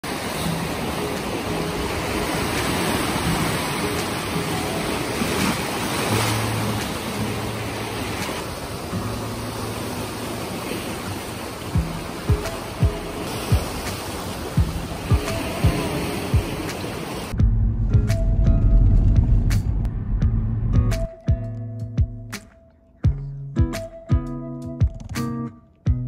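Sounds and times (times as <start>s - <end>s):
sea waves washing: 0.0s - 17.4s
low thumps: 17.4s - 22.3s.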